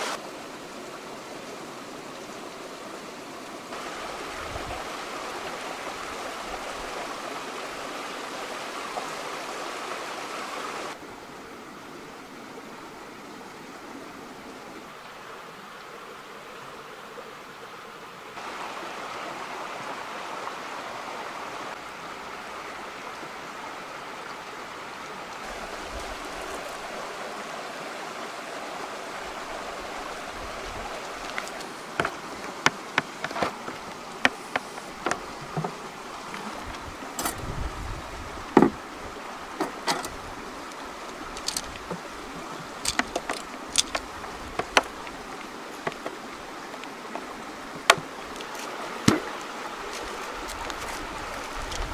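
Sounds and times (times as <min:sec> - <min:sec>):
background hiss: 0:00.0 - 0:51.9.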